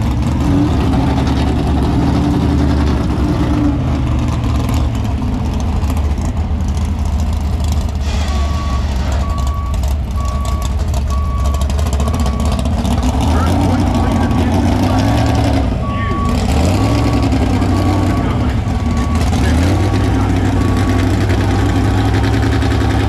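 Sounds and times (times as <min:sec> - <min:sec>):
heavy engines rumbling: 0:00.0 - 0:23.0
higher engine note: 0:08.0 - 0:23.0
backup alarm beeping: 0:08.3 - 0:12.5, 0:15.8 - 0:21.7.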